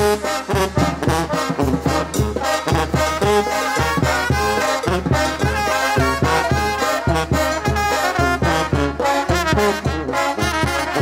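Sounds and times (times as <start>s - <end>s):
brass band playing cumbia: 0.0s - 11.0s.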